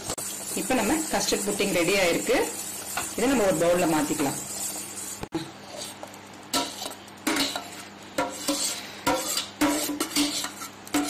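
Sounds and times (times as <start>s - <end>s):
metal spoon scraping a pot: 2.2s - 11.0s.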